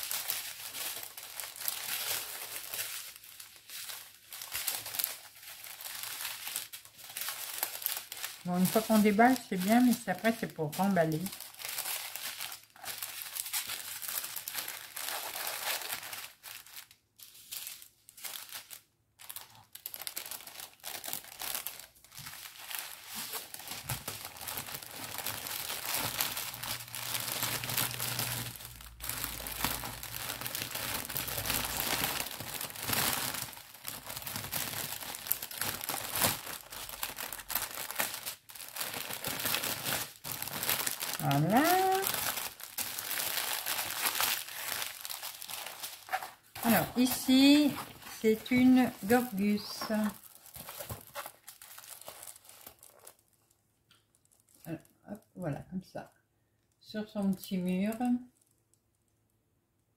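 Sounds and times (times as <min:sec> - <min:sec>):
plastic packaging crinkling: 0:00.0 - 0:55.2.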